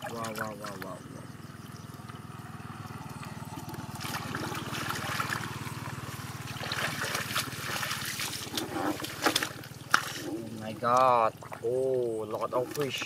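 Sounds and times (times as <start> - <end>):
hands splashing in muddy water: 3.6 - 11.8.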